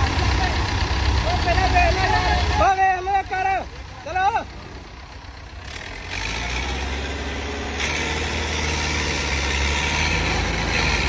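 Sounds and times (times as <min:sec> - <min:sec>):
diesel tractor engines under load: 0:00.0 - 0:11.0.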